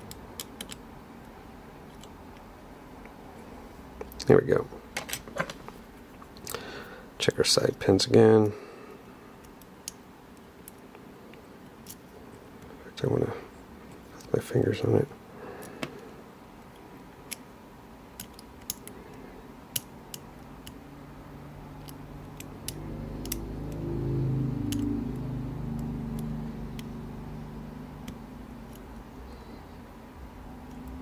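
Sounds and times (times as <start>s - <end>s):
low hum: 20.2s - 31.0s
lock pick metallic clicks: 21.8s - 23.8s.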